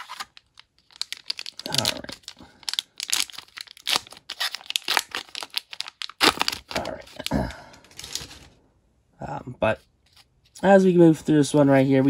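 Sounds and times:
foil pack crinkling and tearing: 0:00.0 - 0:07.4.

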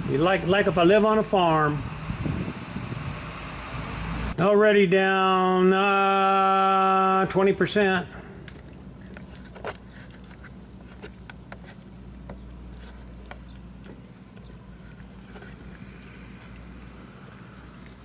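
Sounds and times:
tractor engine rumbling: 0:00.0 - 0:04.4.

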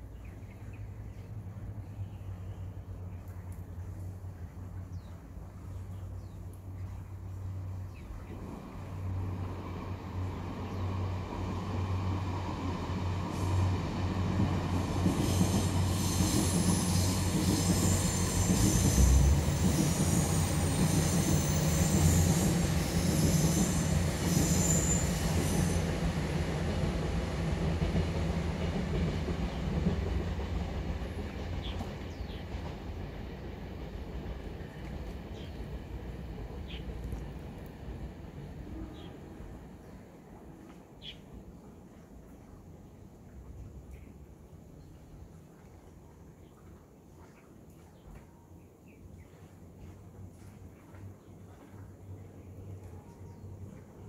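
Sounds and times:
train rumble: 0:00.0 - 0:46.8
wheel squeal on rails: 0:14.7 - 0:26.2.

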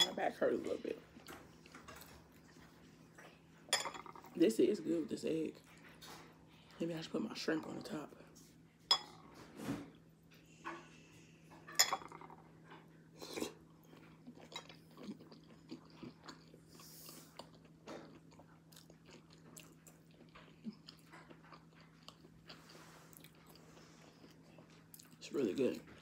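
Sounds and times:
chewing and wet mouth sounds: 0:12.2 - 0:26.0.

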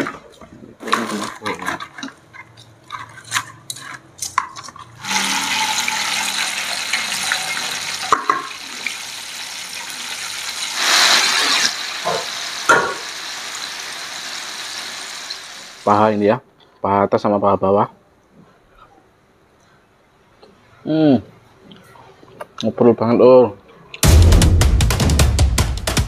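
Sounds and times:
meat sizzling in hot oil: 0:05.0 - 0:15.9.

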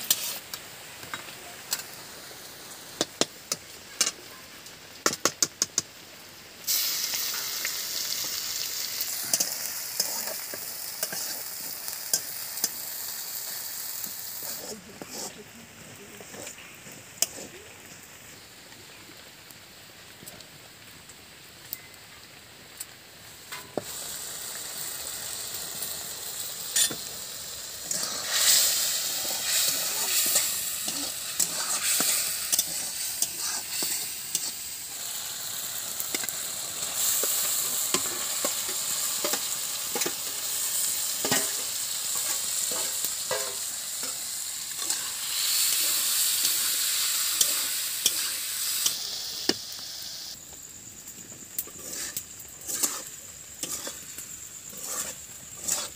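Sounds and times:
fish frying in hot oil: 0:00.0 - 0:55.9
metal spoon scraping a pan: 0:00.1 - 0:00.4, 0:09.1 - 0:12.8, 0:14.4 - 0:15.4, 0:17.2 - 0:17.5, 0:26.7 - 0:27.1, 0:27.8 - 0:34.7, 0:37.0 - 0:49.0, 0:51.7 - 0:55.9.

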